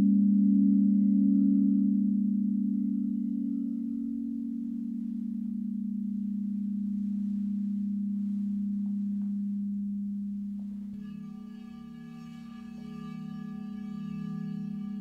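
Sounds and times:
singing bowl humming: 0.0s - 15.0s
singing bowl struck with mallet: 8.7s - 15.0s.

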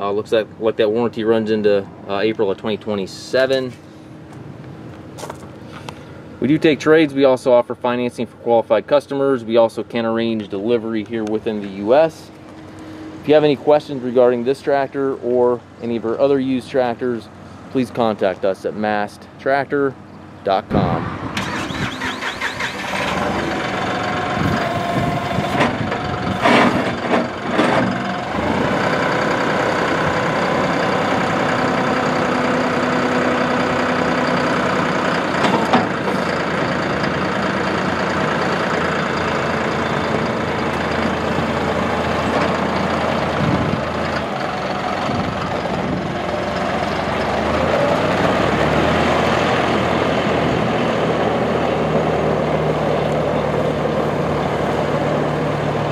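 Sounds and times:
diesel tractor engine running: 20.0s - 55.9s.

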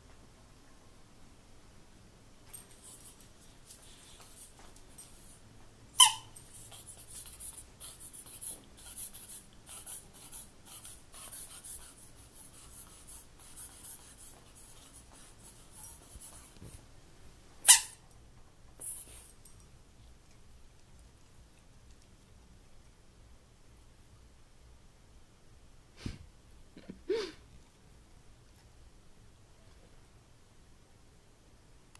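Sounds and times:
rubber squeaky toy squeaking: 6.0s - 6.4s, 17.7s - 18.0s.

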